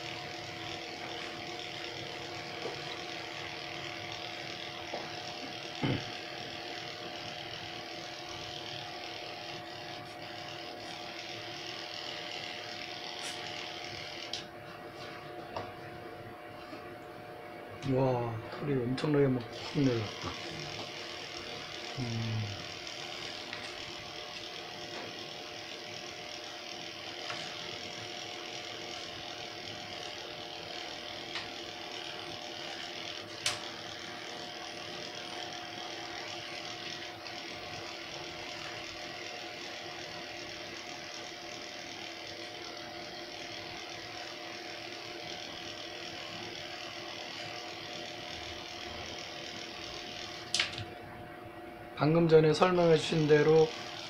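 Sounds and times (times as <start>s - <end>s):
electric pet clipper humming: 0.0s - 54.0s
sharp click: 33.4s - 33.6s, 50.5s - 50.9s.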